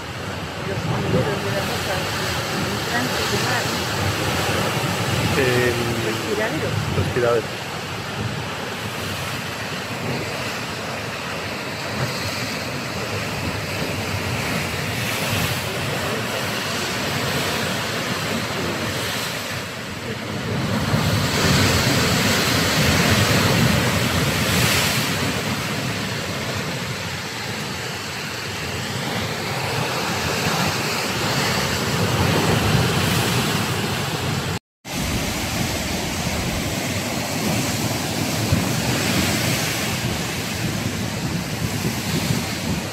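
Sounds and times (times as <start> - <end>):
waves washing against cliffs: 0.0 - 42.9
wind buffeting microphone: 29.0 - 42.9.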